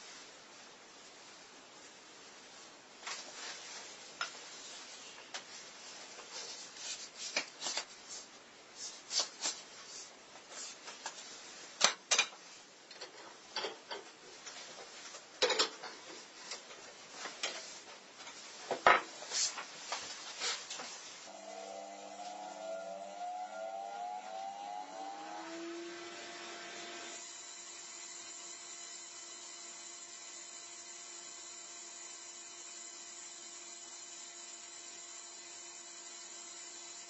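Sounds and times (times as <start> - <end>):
hand tools on wooden workbench: 20.3 - 37.0.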